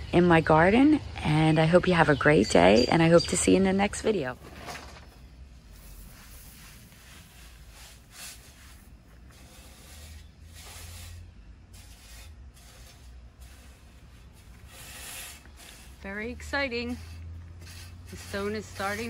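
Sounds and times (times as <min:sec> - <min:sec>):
low steady rumble: 0:00.0 - 0:19.0
gravel being shovelled: 0:05.7 - 0:19.0.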